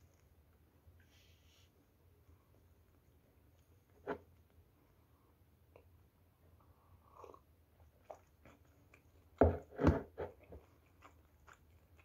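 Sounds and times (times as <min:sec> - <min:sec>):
faint chewing: 0:06.8 - 0:12.0.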